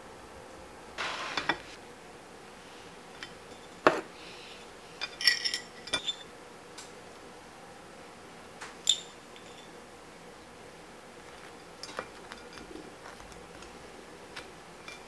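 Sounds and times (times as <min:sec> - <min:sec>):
glass and metal clinking on ceramic: 0:05.0 - 0:06.2.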